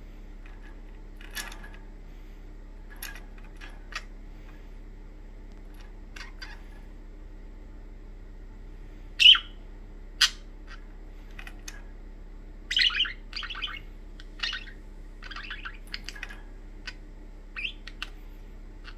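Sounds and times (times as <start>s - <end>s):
budgerigars chirping: 9.2s - 9.6s, 10.2s - 10.8s, 12.7s - 18.2s.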